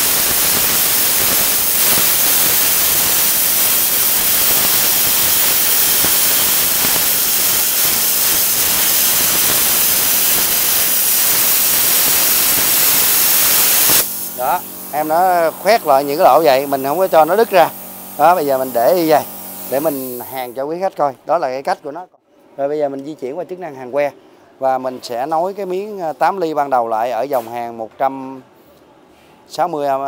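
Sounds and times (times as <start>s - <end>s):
plasma cutter hissing: 0.0s - 20.6s.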